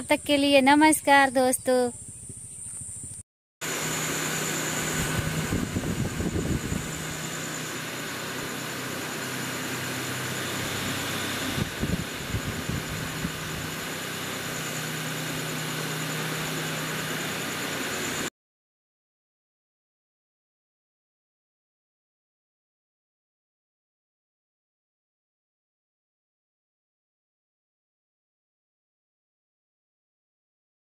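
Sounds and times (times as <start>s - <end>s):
engine-like hum with high whine: 2.0s - 18.3s
rumbling buffets: 3.7s - 18.3s.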